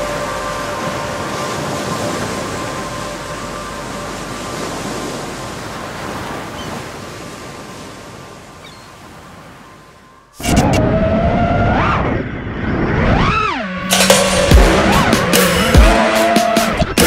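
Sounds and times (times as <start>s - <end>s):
loud steady whine: 0.0s - 5.1s
rushing ocean surf: 0.0s - 10.8s.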